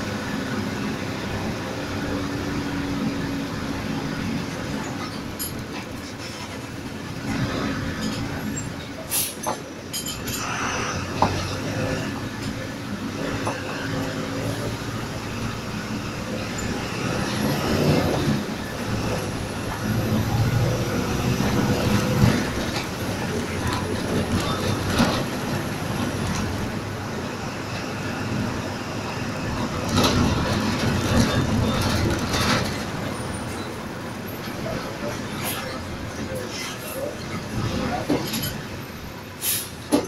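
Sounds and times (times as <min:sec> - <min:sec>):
bus engine and road rumble: 0:00.0 - 0:40.0
bus body knocks and rattles: 0:29.6 - 0:33.5, 0:34.4 - 0:38.7.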